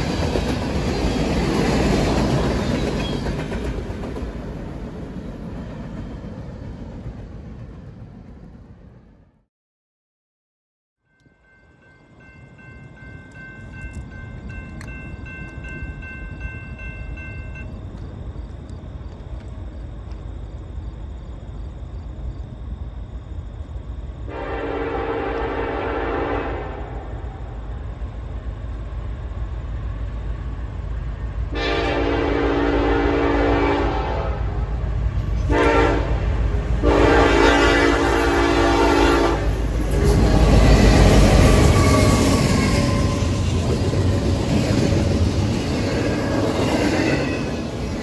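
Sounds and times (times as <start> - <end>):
train rumble: 0.0 - 9.4, 11.2 - 48.0
locomotive air horn blast: 24.3 - 27.0, 31.5 - 34.6, 35.4 - 36.2, 36.8 - 39.5.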